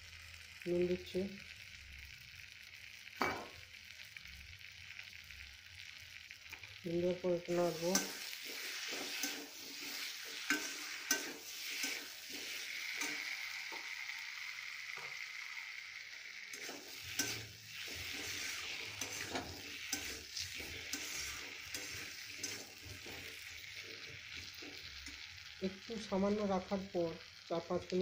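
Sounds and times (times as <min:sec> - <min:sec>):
food sizzling in oil: 0:00.0 - 0:28.0
spatula scraping metal pan: 0:07.7 - 0:13.8, 0:16.5 - 0:25.2.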